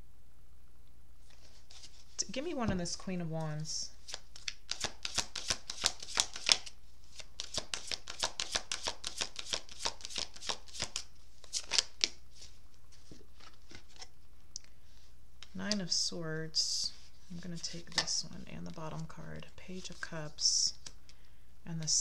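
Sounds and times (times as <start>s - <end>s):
cards being shuffled: 1.3s - 2.2s, 4.0s - 14.1s.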